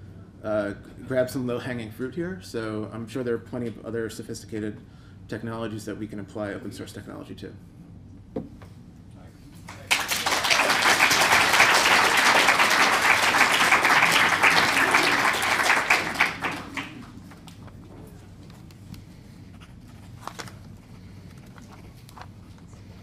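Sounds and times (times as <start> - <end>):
audience applauding: 9.7 - 17.6.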